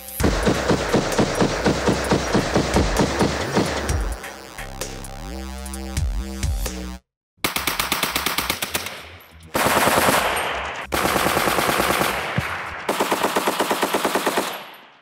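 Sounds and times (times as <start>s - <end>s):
machine gun automatic fire: 0.2s - 4.1s, 7.4s - 15.0s.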